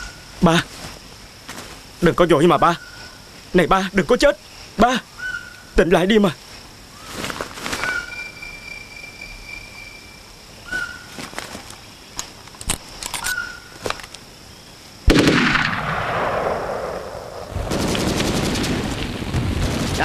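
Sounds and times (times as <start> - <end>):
loud explosion: 15.1 - 20.0.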